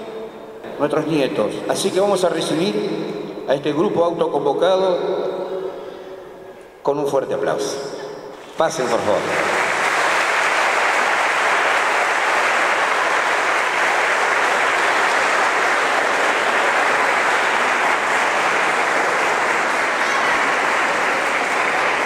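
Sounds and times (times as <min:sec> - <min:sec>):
audience applause: 0:08.8 - 0:22.0.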